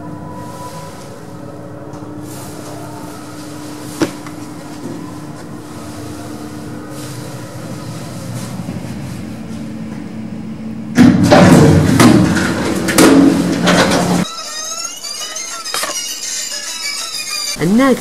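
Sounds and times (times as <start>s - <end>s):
lift motor hum: 0.0s - 17.6s
sliding lift doors rattling: 10.9s - 14.3s.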